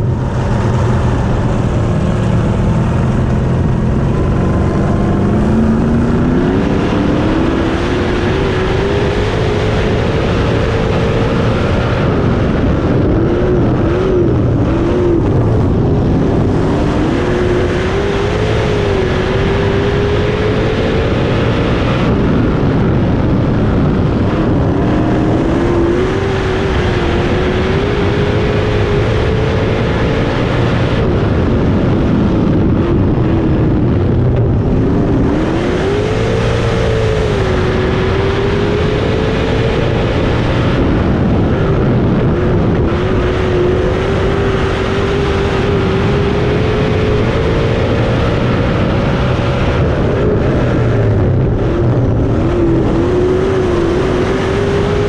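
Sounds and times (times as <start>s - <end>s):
race car engine running: 0.0s - 55.0s
wind noise: 0.0s - 55.0s.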